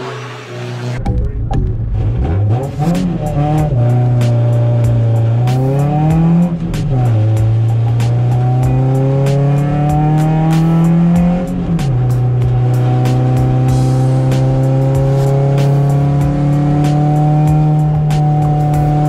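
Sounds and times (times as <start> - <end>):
car engine at full throttle: 0.0 - 19.0.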